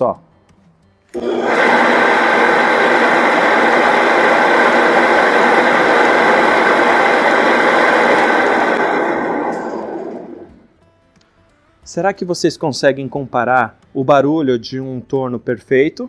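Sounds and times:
wood lathe rattling: 0:01.2 - 0:10.5
high whine: 0:01.2 - 0:10.7.

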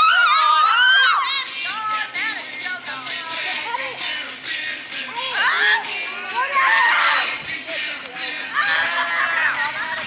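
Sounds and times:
child screaming excitedly: 0:00.0 - 0:01.3
music: 0:00.0 - 0:10.0.

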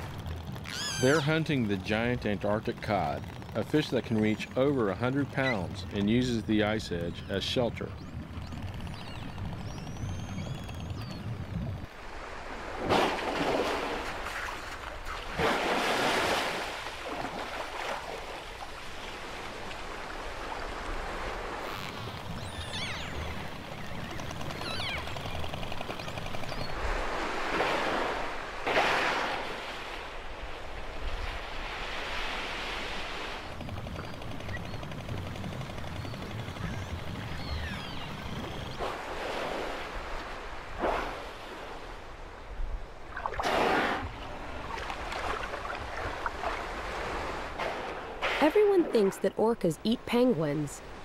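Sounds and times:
killer whale buzzing call: 0:00.6 - 0:01.5
whale blowing: 0:43.3 - 0:44.3.

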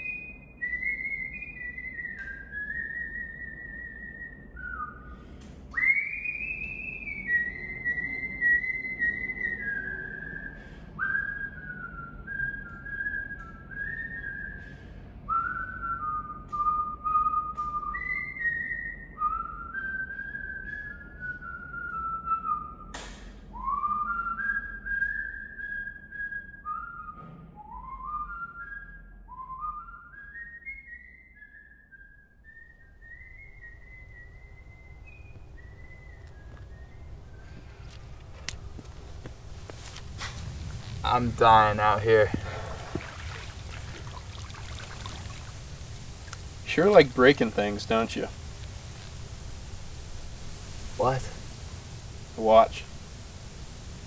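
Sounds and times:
person whistling a tune: 0:00.0 - 0:22.9, 0:23.5 - 0:37.6.

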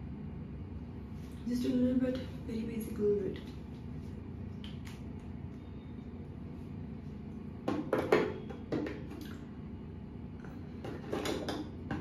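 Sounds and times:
low room hum: 0:00.0 - 0:12.0
makeup items knocking and rattling: 0:07.6 - 0:09.2, 0:10.8 - 0:12.0.

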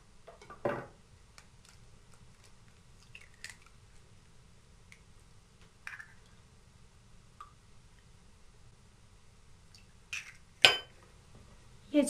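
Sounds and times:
egg shell cracking: 0:01.3 - 0:04.1, 0:05.8 - 0:06.3, 0:10.1 - 0:10.6.

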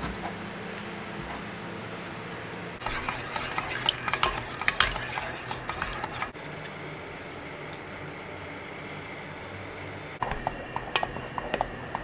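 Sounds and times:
kitchen background: 0:02.3 - 0:06.7, 0:10.2 - 0:12.0
utensils clinking against pot: 0:02.8 - 0:06.4, 0:10.2 - 0:12.0.

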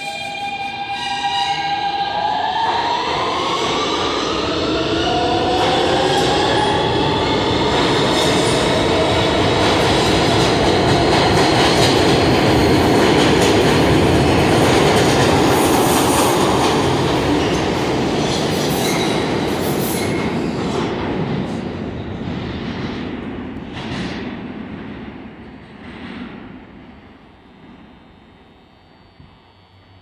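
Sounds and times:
subway train rumbling on rails: 0:00.0 - 0:30.0.

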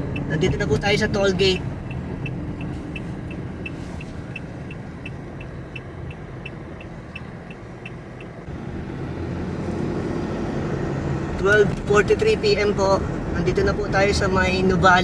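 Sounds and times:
engine and road rumble: 0:00.0 - 0:15.0
light regular ticking: 0:00.1 - 0:08.5.

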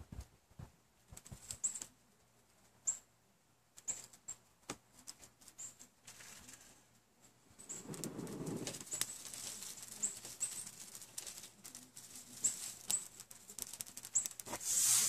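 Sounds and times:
burning tinder crackling: 0:04.1 - 0:15.0.

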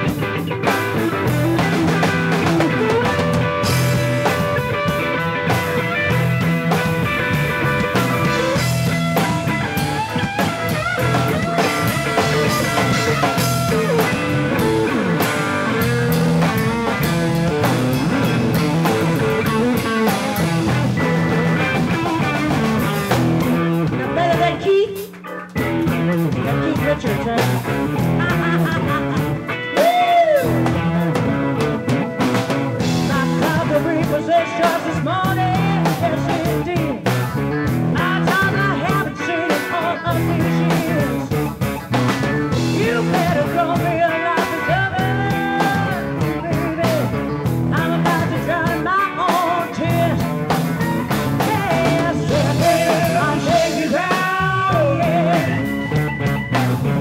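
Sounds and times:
rock band playing: 0:00.0 - 0:57.0
woman singing: 0:23.9 - 0:25.2, 0:26.3 - 0:29.0, 0:29.7 - 0:30.6, 0:32.9 - 0:41.5, 0:42.6 - 0:50.4, 0:51.0 - 0:55.9.

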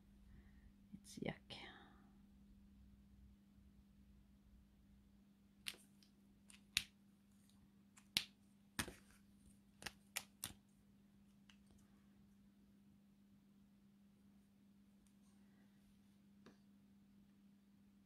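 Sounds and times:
plastic marker clicks and taps: 0:05.6 - 0:07.0, 0:08.0 - 0:09.0, 0:09.8 - 0:10.6.

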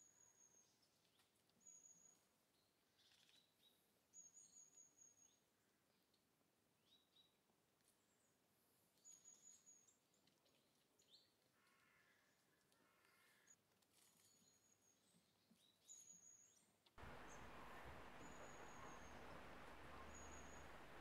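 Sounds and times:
faint bird chirps: 0:15.8 - 0:21.0.

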